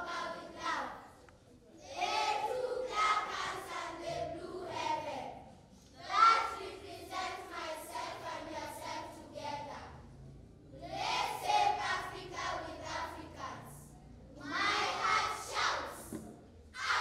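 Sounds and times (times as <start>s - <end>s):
children singing in unison: 0.0s - 1.0s, 1.9s - 5.3s, 6.0s - 10.0s, 10.8s - 13.8s, 14.4s - 16.2s, 16.8s - 17.0s.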